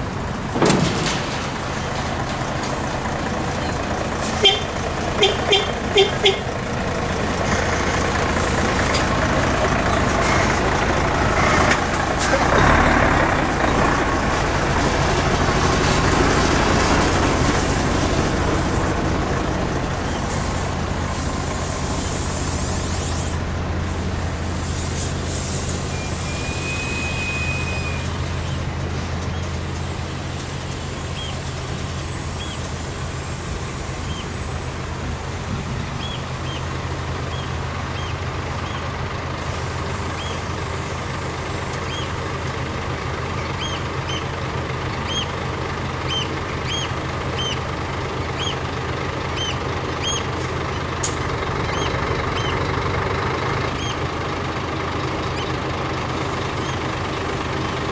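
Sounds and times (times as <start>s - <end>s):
diesel trucks idling: 0.0s - 57.9s
air brake hiss: 20.2s - 28.8s, 29.4s - 34.7s, 39.4s - 41.9s.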